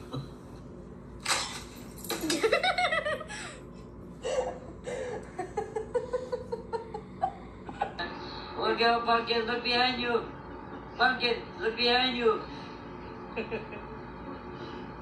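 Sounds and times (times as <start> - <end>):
person laughing: 2.2 - 3.6, 4.2 - 8.0.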